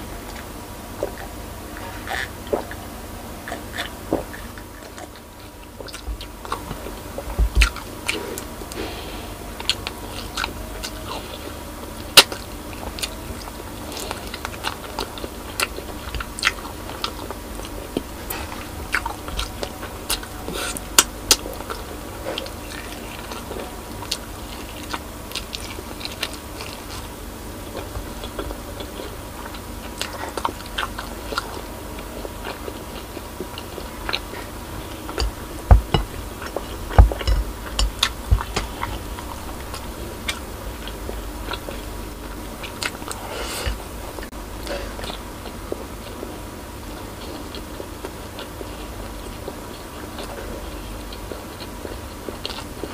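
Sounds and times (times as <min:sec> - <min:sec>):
chewing and biting: 0:03.4 - 0:52.9
low thumps: 0:35.2 - 0:42.7.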